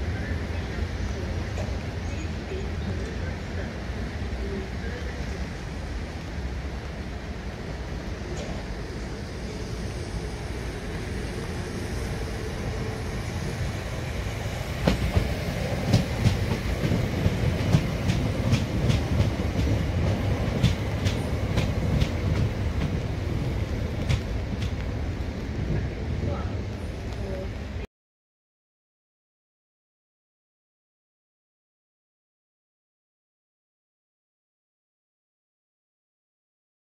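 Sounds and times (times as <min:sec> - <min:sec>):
electric train rumble: 0:00.0 - 0:27.9.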